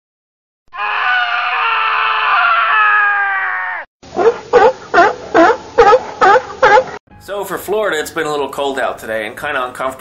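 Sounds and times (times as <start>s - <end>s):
long scream-like cry: 0.7s - 3.9s.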